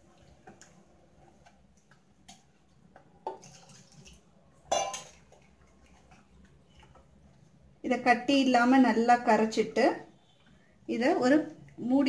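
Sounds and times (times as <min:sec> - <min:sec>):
ladle stirring batter: 0:00.0 - 0:07.8
ladle knocking metal pot: 0:04.7 - 0:05.2.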